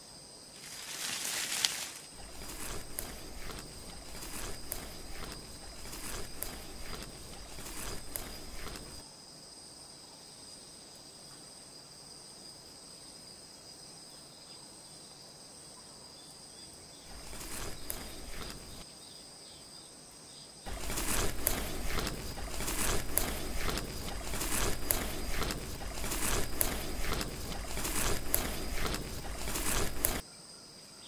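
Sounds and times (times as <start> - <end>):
thin high insect-like buzz: 0.0 - 9.7, 16.1 - 30.3
clicks and rustle: 0.6 - 9.0, 17.1 - 18.8, 20.7 - 30.2.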